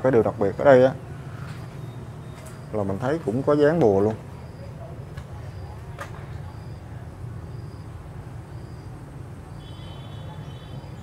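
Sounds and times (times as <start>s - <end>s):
faint high chirp: 1.6s - 3.0s, 4.3s - 11.0s.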